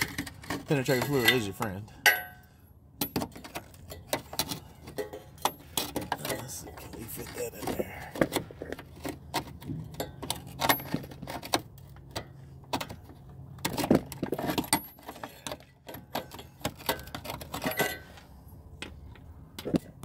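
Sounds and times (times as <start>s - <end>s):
metal tools clinking on metal: 0.0s - 7.9s, 14.4s - 18.2s.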